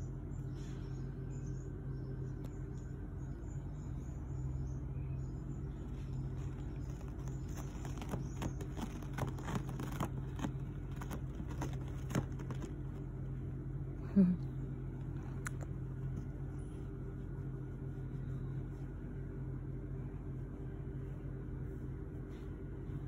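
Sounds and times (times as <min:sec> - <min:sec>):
steady low rumble: 0:00.0 - 0:23.0
cat claws scratching doormat: 0:06.3 - 0:13.0.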